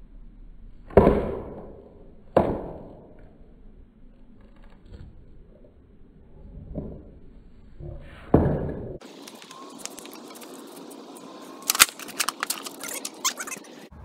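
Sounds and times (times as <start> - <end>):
skateboard landing crack: 8.3 - 13.3
skateboard wheels rumbling: 8.8 - 14.0
skateboard smacking concrete: 9.0 - 13.0.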